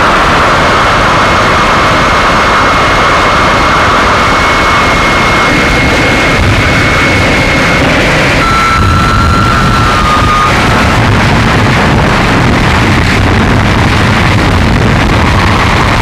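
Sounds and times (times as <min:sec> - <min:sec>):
thin steady high tone: 0:08.4 - 0:10.6.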